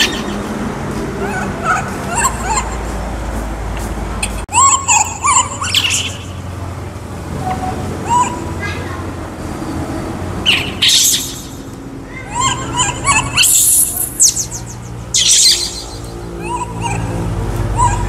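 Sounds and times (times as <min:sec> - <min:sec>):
baby monkey squealing: 0:00.0 - 0:00.6, 0:01.2 - 0:02.9, 0:04.2 - 0:06.6, 0:07.5 - 0:08.8, 0:10.4 - 0:18.0.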